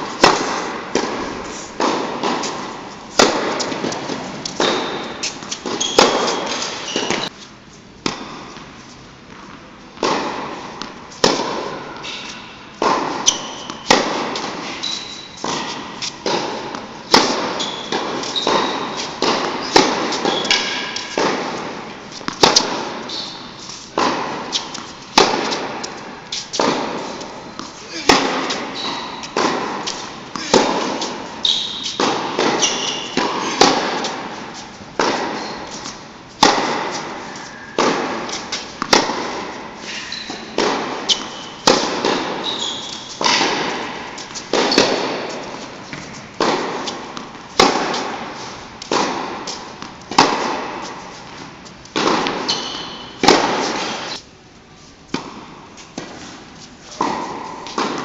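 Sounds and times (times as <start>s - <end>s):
tennis balls bouncing on court: 0.0s - 7.3s, 8.0s - 54.2s, 55.1s - 58.0s
tennis balls struck by rackets: 0.0s - 7.4s, 8.0s - 54.3s, 55.1s - 58.0s.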